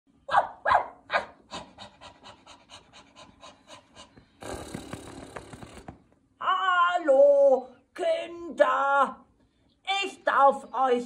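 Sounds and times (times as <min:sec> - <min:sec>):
quick panting breaths: 0:01.4 - 0:05.6.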